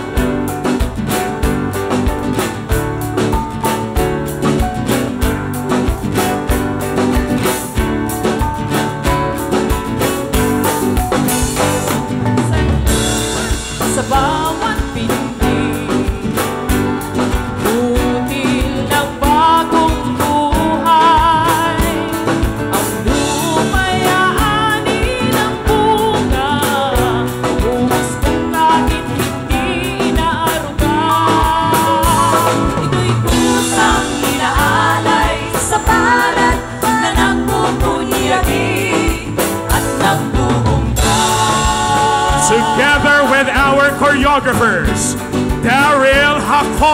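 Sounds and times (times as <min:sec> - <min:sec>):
instrumental accompaniment: 0:00.0 - 0:46.9
woman singing into a microphone: 0:12.3 - 0:43.2.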